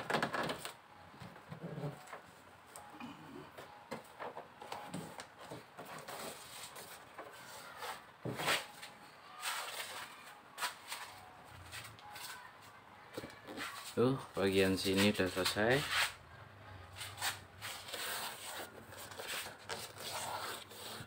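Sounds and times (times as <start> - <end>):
foil sheet crinkling and rubbing: 17.1 - 21.0.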